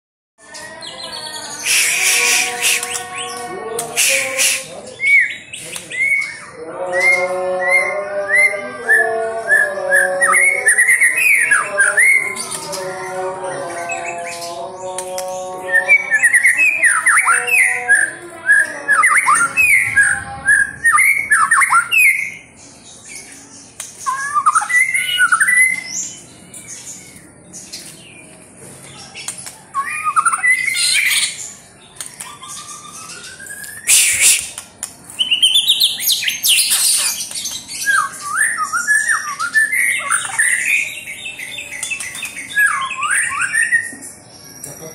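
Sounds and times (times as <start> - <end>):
harsh bird notes: 0.6 - 28.3, 29.2 - 44.9
bird singing loud whistles: 1.5 - 3.1, 32.2 - 34.6.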